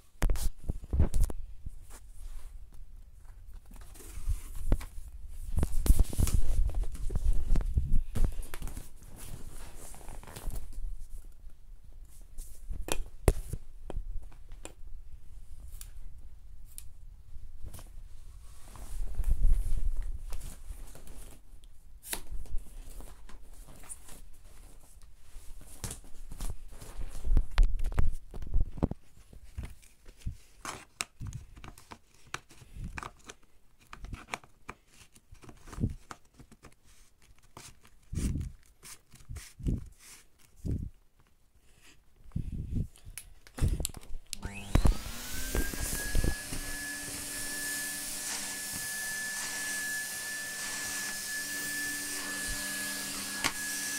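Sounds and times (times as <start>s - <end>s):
vacuum cleaner being handled: 43.5s - 53.9s
vacuum cleaner motor running: 44.4s - 53.9s.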